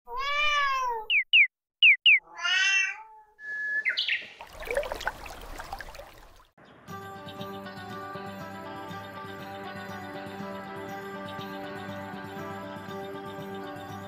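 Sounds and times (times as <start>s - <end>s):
cat meowing: 0.1s - 1.1s, 2.2s - 3.4s
faint bird twittering: 1.0s - 2.3s, 3.4s - 6.2s
bird whistled call: 1.1s - 2.2s, 3.4s - 4.4s
high falling chirps: 1.1s - 2.2s, 3.5s - 6.4s.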